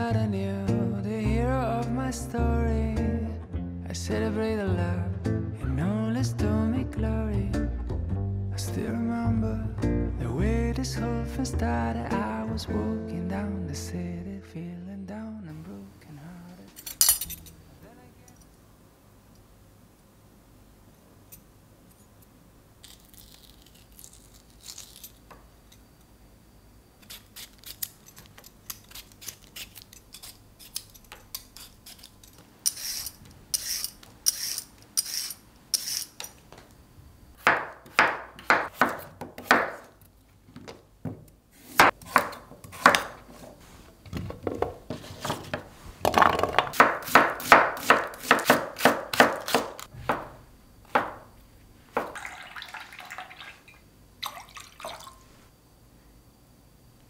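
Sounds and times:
peeler scraping carrot: 0:28.7 - 0:36.3
knife chopping on wooden board: 0:37.4 - 0:39.8, 0:41.7 - 0:43.2, 0:46.7 - 0:51.2.

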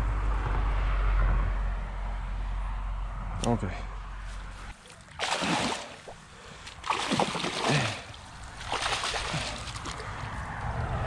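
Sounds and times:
fish splashing in water: 0:04.8 - 0:10.4.

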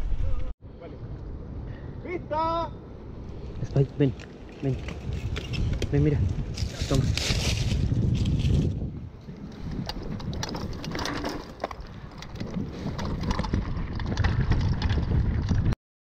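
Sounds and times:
wind buffeting microphone: 0:02.8 - 0:15.8
tyres rolling on dirt trail: 0:03.0 - 0:15.8
bike clicks and rattles: 0:04.2 - 0:15.8.

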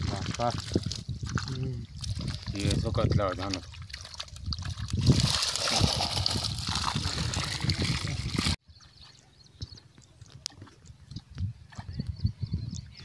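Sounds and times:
water splashing and sloshing: 0:00.0 - 0:09.2.

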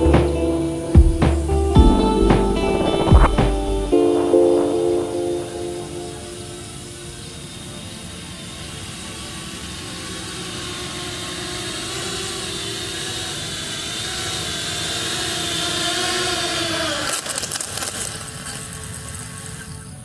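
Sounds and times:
drone motors whining: 0:00.0 - 0:20.0
rapid crackle of clicks: 0:17.0 - 0:20.0.

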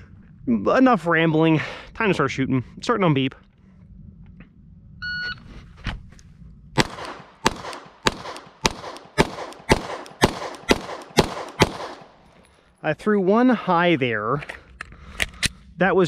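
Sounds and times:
pistol shots: 0:06.8 - 0:12.3.

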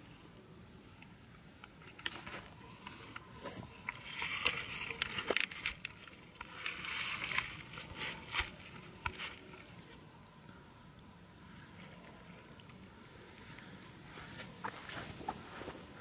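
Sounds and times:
grass rustling and crackling: 0:01.9 - 0:10.0.

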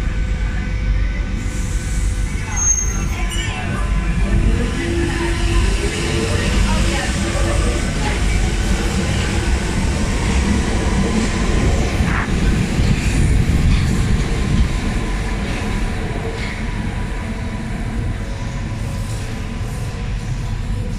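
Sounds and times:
train wheels rumbling on rails: 0:00.0 - 0:20.9.

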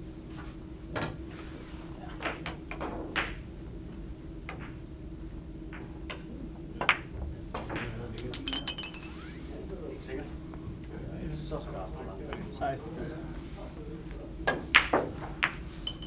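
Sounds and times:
billiard balls clicking: 0:06.8 - 0:09.4, 0:14.8 - 0:16.0.

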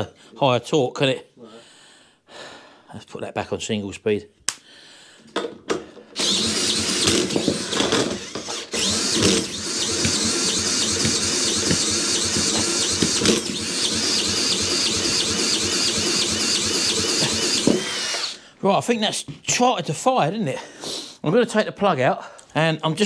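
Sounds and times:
cordless drill spinning: 0:06.1 - 0:18.4.

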